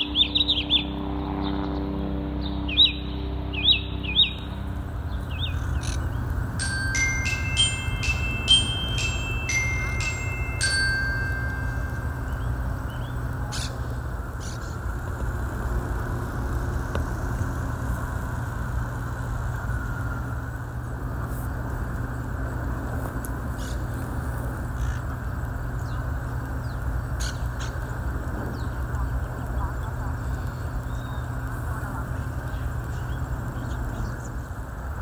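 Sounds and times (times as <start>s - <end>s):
traffic rumble: 0.0s - 35.0s
harsh parakeet calls: 5.2s - 6.2s, 13.0s - 14.8s.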